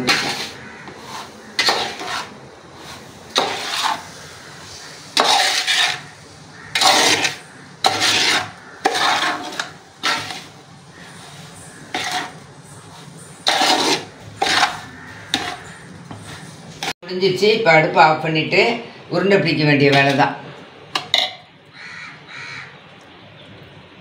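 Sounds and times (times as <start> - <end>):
metal ladle scraping a pot: 0.0 - 17.0.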